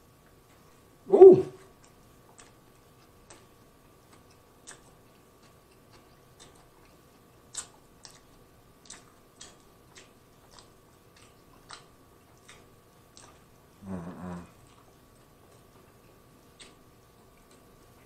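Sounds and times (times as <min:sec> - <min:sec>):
chewing and lip smacks: 0:00.0 - 0:18.0
faint steady hum: 0:00.0 - 0:18.0.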